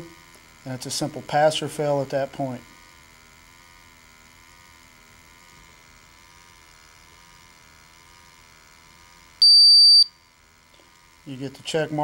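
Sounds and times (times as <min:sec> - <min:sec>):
sampling pump faint hum: 0:00.0 - 0:12.0
loud high-pitched beep: 0:09.4 - 0:10.2.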